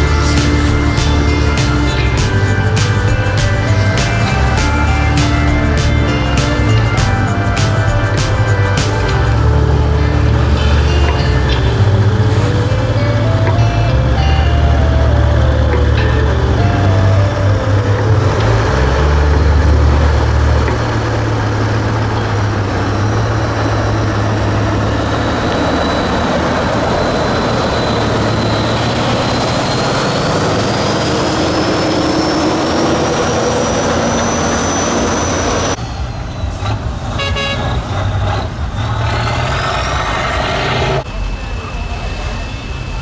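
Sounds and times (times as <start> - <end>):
high whistle rising in pitch: 0.0 - 37.3, 41.0 - 43.0
diesel truck engine under load: 0.0 - 43.0.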